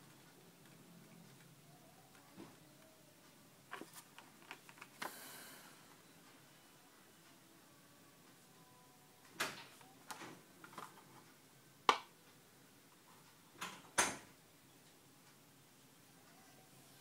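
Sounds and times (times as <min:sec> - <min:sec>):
plastic packaging rustling: 0:03.7 - 0:05.2.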